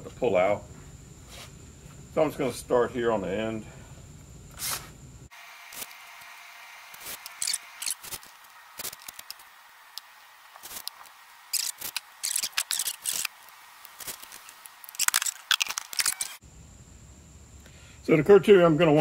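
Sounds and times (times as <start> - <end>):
hands handling foam and tools: 7.0 - 16.4.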